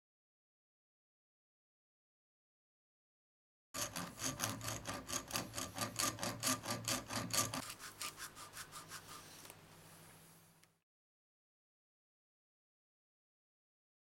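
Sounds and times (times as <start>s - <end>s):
hacksaw cutting plastic: 3.8s - 9.1s
sandpaper rubbing: 3.8s - 9.5s.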